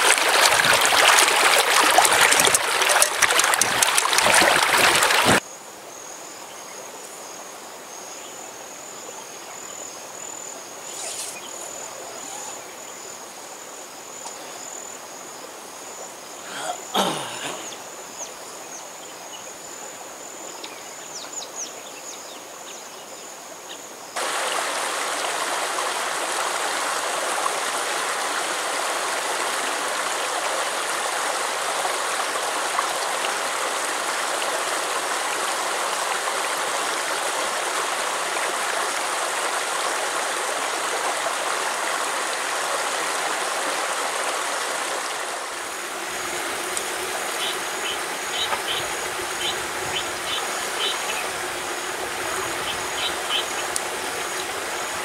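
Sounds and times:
stream rushing over rocks: 0:00.0 - 0:05.4, 0:24.2 - 0:55.0
insect trilling: 0:10.8 - 0:12.8.

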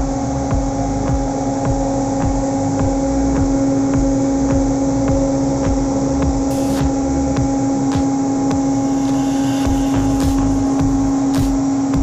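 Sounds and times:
compressor machinery hum: 0:00.0 - 0:12.0.

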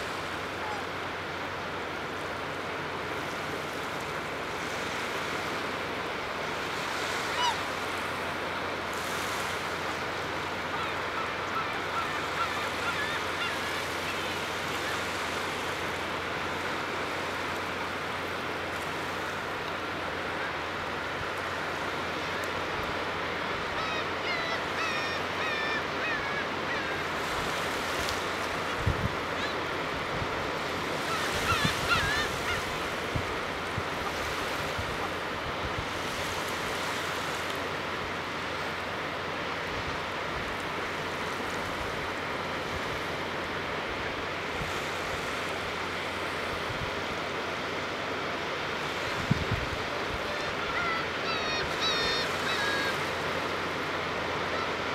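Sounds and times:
small waves washing onto sand: 0:00.0 - 0:54.9
geese calling: 0:07.2 - 0:07.9, 0:10.0 - 0:15.3, 0:23.2 - 0:28.6, 0:30.9 - 0:33.1, 0:50.2 - 0:53.4.

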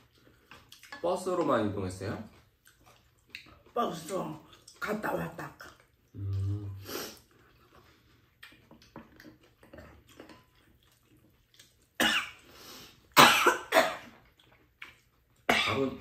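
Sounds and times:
woman coughing: 0:12.0 - 0:12.4, 0:13.2 - 0:14.1, 0:15.5 - 0:15.9.

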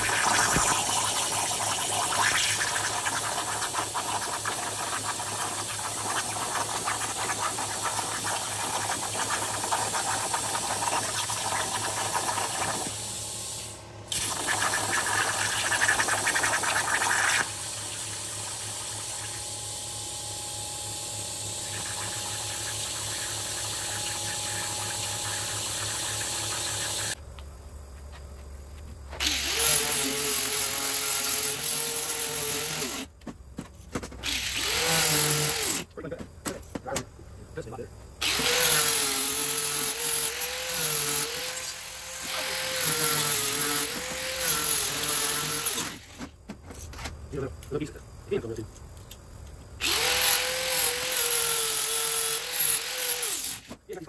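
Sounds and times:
plasma cutter hissing: 0:00.0 - 0:19.4, 0:21.6 - 0:27.2
angle grinder grinding steel: 0:38.2 - 0:46.1.

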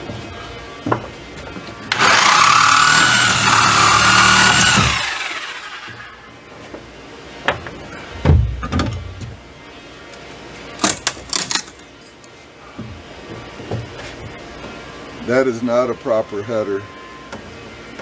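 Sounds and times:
power saw whining: 0:01.9 - 0:06.3.

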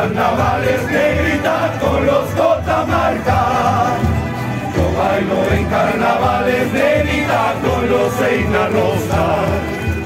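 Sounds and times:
men singing together: 0:00.0 - 0:10.0.

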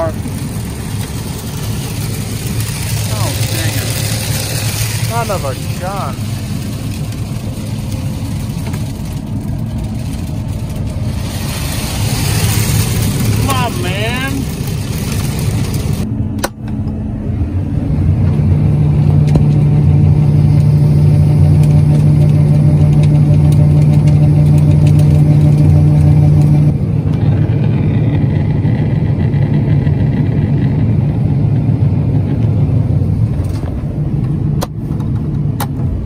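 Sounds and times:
grain auger unloading: 0:00.0 - 0:16.1
diesel engine running: 0:00.0 - 0:36.0.

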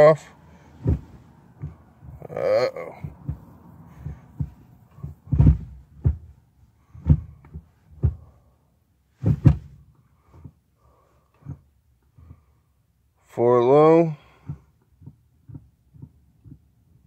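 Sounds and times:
dull thumps and knocks: 0:00.6 - 0:08.5, 0:09.1 - 0:10.6, 0:11.4 - 0:12.5, 0:14.3 - 0:17.0.

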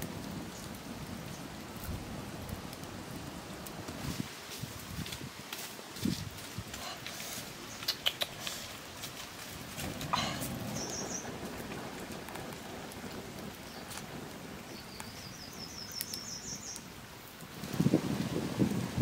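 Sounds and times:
wood fire crackling: 0:00.0 - 0:19.0
bird calling: 0:07.6 - 0:08.8, 0:10.1 - 0:11.4.

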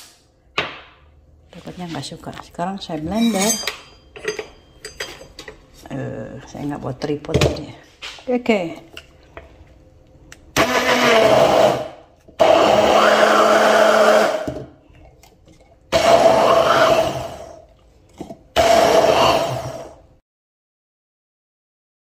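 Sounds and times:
stick blender pulsing: 0:10.6 - 0:14.7, 0:15.9 - 0:20.0.

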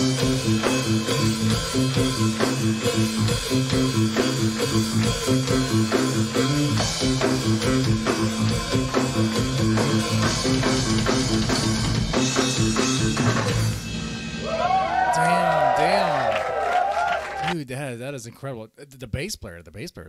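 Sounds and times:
electric bass line: 0:00.0 - 0:14.8
rock drum beat: 0:00.0 - 0:15.1.

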